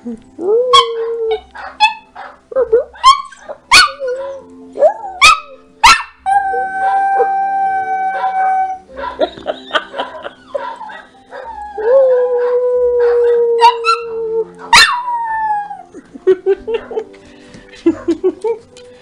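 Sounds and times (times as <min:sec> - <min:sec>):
dogs howling: 0:00.6 - 0:02.4, 0:03.0 - 0:09.3, 0:09.9 - 0:17.1
dog yipping: 0:00.7 - 0:02.4, 0:03.0 - 0:04.4, 0:05.1 - 0:06.2, 0:14.6 - 0:15.2.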